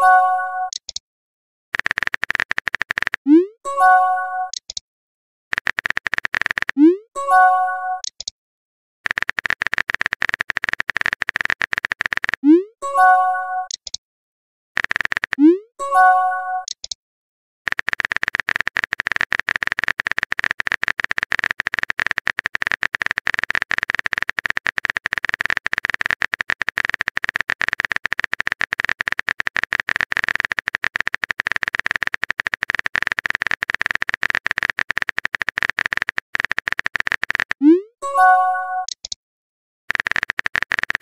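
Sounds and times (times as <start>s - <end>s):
phone keyboard typing clicks: 0.0s - 1.0s, 1.8s - 3.5s, 4.4s - 4.8s, 5.5s - 7.0s, 8.0s - 8.3s, 9.1s - 12.6s, 13.6s - 14.0s, 14.8s - 15.6s, 16.6s - 17.0s, 17.7s - 39.2s, 39.9s - 41.0s.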